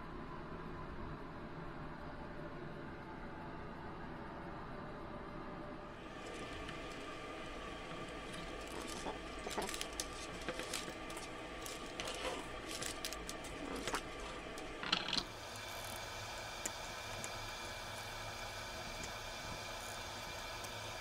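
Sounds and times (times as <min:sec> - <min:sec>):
steady hum: 0:05.0 - 0:21.0
handling clicks taps and rustles: 0:08.0 - 0:15.3.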